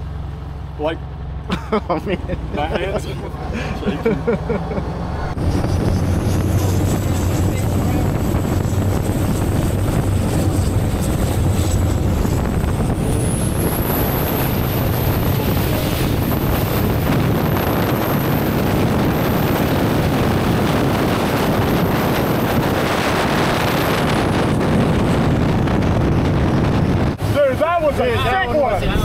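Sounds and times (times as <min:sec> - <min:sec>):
drone propellers rushing: 0:01.8 - 0:29.0
high motor whine: 0:02.3 - 0:29.0.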